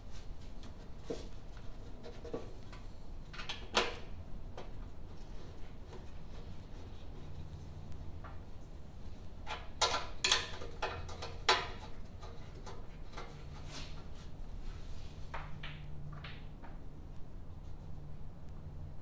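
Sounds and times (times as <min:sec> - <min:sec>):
steady low hum: 0:04.0 - 0:09.9, 0:11.8 - 0:19.0.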